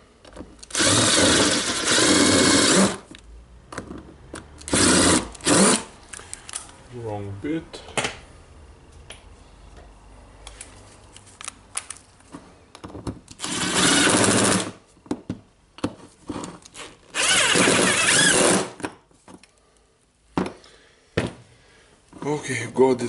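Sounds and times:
cordless driver spinning screws: 0.6 - 3.0, 13.4 - 14.7, 17.1 - 18.7
clicks of parts handled: 6.1 - 6.8, 9.0 - 13.4.

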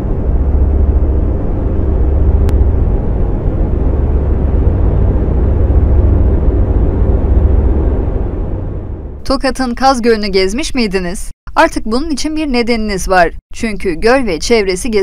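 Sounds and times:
low rumble: 0.0 - 10.4.

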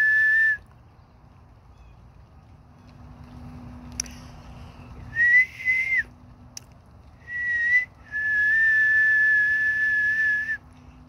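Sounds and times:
person whistling: 5.1 - 6.1, 7.3 - 10.6.

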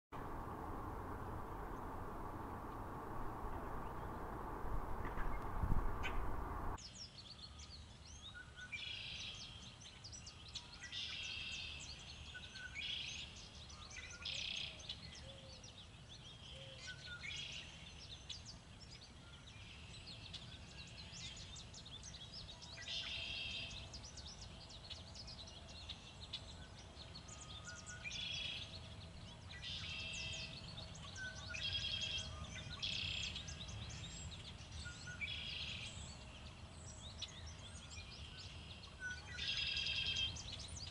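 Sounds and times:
low wind rumble: 0.1 - 6.8
songbirds singing and chirping: 0.2 - 40.9.

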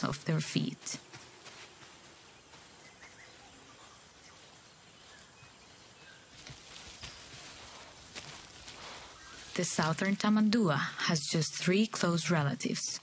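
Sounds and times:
soft outdoor hiss: 0.0 - 13.0
soft rustles: 0.6 - 10.4
bird chirps: 2.2 - 7.6, 8.8 - 10.2.

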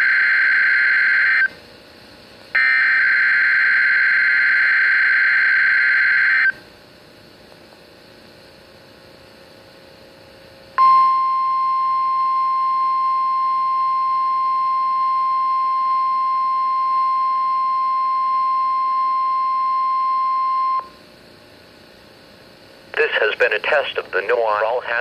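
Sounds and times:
high alarm beep: 2.6 - 6.6, 10.8 - 20.9.

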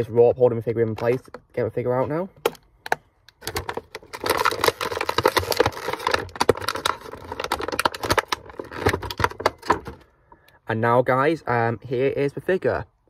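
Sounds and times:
plastic packaging crinkling and clicking: 2.4 - 10.1.

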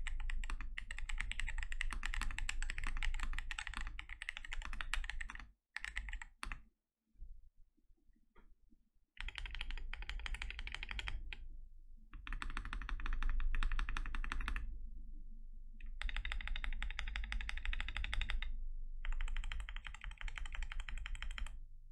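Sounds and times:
mechanical keyboard typing: 0.0 - 6.6, 9.2 - 11.4, 12.2 - 14.6, 15.8 - 21.6.

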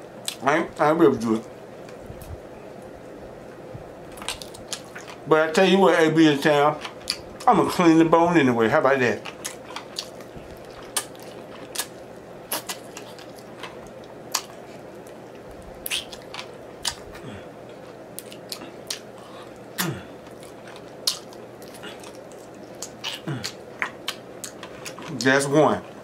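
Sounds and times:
lip smacks: 9.4 - 14.6, 15.8 - 17.2, 18.2 - 25.0
low throat sounds: 19.8 - 20.2, 23.0 - 23.6.

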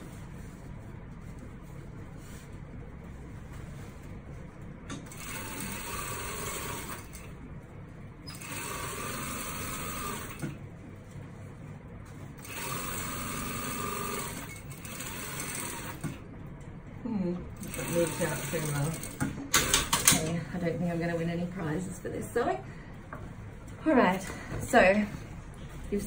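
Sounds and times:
industrial sewing machine running: 5.0 - 7.3, 8.3 - 10.6, 12.4 - 16.2, 17.6 - 20.3.

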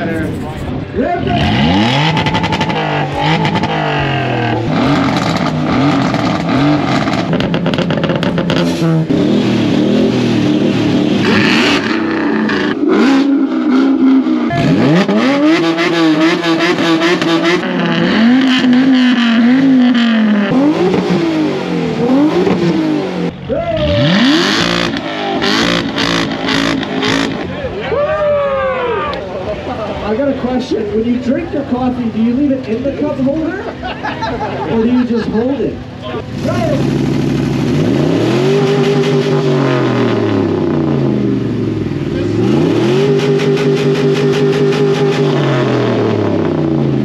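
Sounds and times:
exhaust popping and crackling: 0.0 - 23.4, 36.3 - 47.0
car engine revving: 0.0 - 27.8, 29.3 - 47.0.

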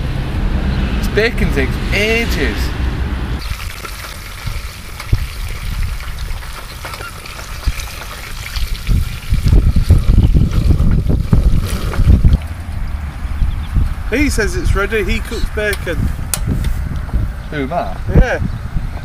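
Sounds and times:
wind buffeting microphone: 4.3 - 19.0.

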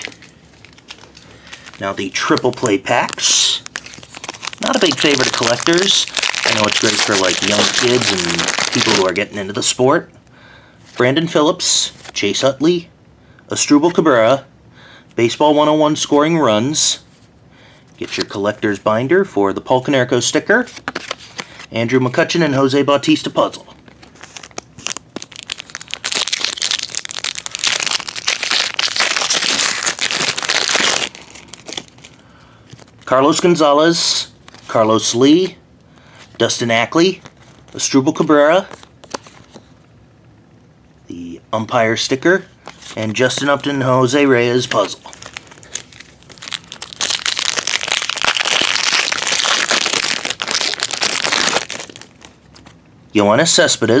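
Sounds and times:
plastic foil wrapper crinkling: 0.0 - 9.3, 23.9 - 33.1, 44.7 - 52.8.

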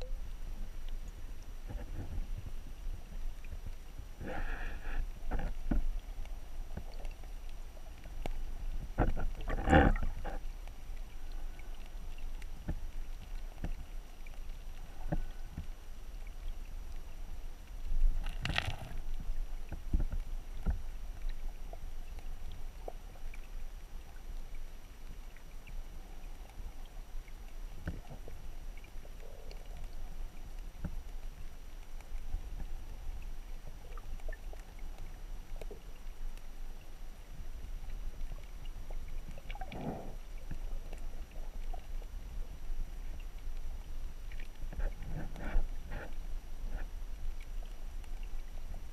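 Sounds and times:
muffled underwater stream rumble: 0.0 - 48.9
underwater clicks and knocks: 5.2 - 10.5, 12.4 - 13.8, 18.0 - 21.4.

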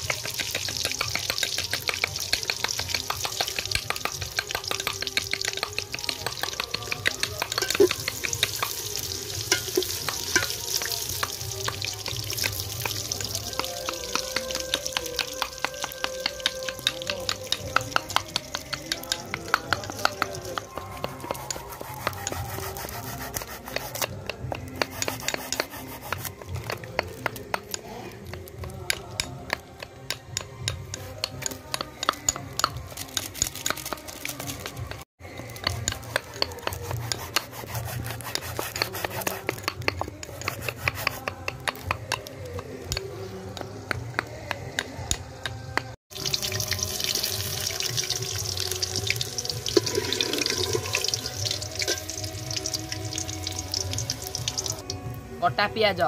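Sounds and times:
running water: 0.0 - 23.7, 46.1 - 54.9.

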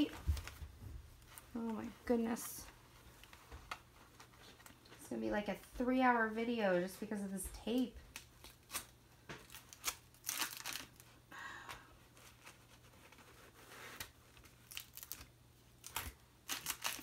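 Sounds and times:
plastic film crinkling: 0.0 - 5.6, 6.8 - 11.3, 12.0 - 17.0
packing tape peeled and torn: 8.1 - 11.2, 12.2 - 17.0.

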